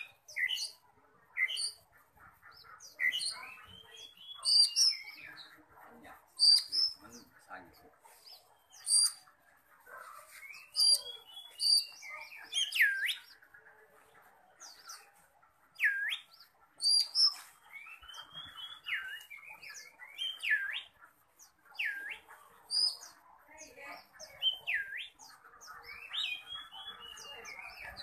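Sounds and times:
bird singing whistles and chirps: 15.8s - 20.9s, 21.8s - 23.0s.

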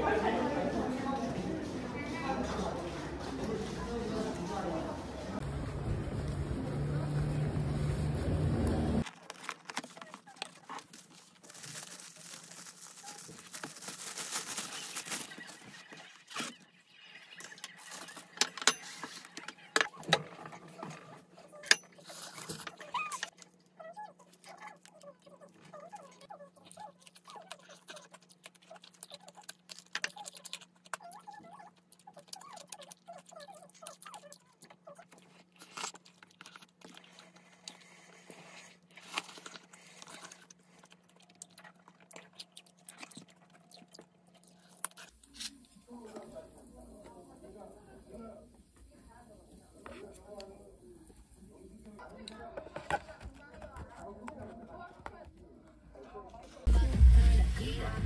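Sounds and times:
paper box rustling: 9.0s - 16.5s.

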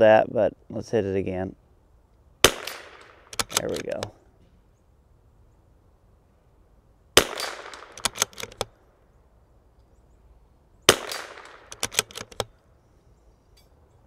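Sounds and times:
rifle shots: 2.4s - 4.1s, 7.2s - 8.7s, 10.9s - 12.5s
rifle bolt clicks: 2.6s - 4.1s, 7.3s - 8.7s, 11.0s - 12.6s.

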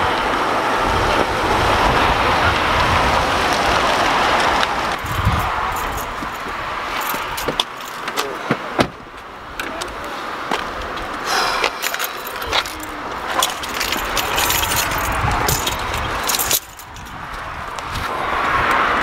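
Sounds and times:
sharp clicks and rattles: 11.7s - 17.9s.

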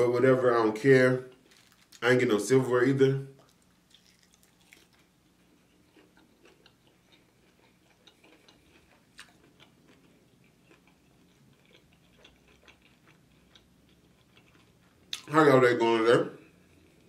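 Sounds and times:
soft wet chewing: 1.2s - 2.1s, 3.4s - 15.3s, 16.4s - 17.0s.

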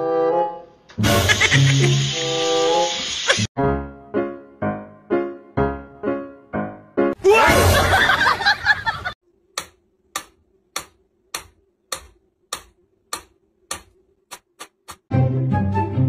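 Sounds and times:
clock ticking: 9.6s - 15.1s.

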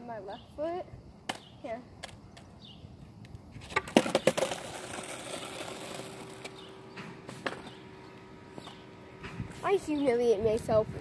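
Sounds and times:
skateboard clacking on asphalt: 1.2s - 2.6s, 3.2s - 7.8s
skateboard wheels rolling: 2.0s - 10.2s.

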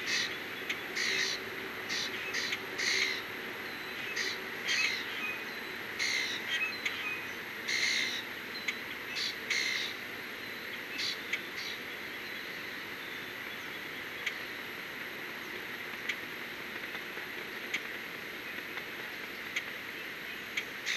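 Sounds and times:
background hiss: 0.0s - 20.9s
harsh hoarse bird calls: 1.0s - 3.3s.

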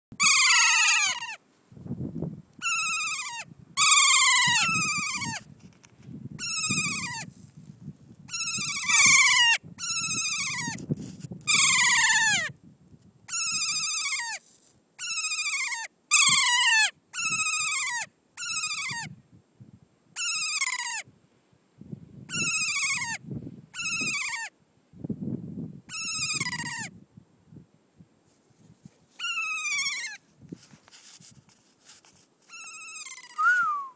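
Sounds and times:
parrot screeching calls: 0.2s - 1.4s, 2.6s - 5.4s, 6.4s - 7.3s, 8.3s - 10.8s, 11.5s - 12.5s, 13.3s - 14.4s, 15.0s - 19.1s, 20.2s - 21.1s, 22.3s - 24.5s, 25.9s - 26.9s, 29.2s - 30.2s, 32.5s - 33.6s.

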